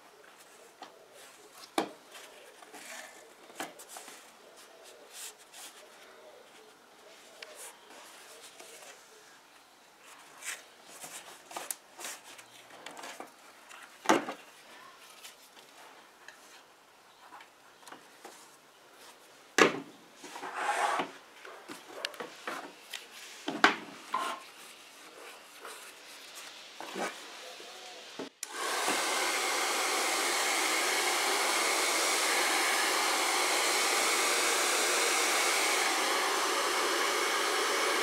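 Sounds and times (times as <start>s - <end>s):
rustling: 0.2s - 9.4s, 10.0s - 19.4s, 20.2s - 27.5s.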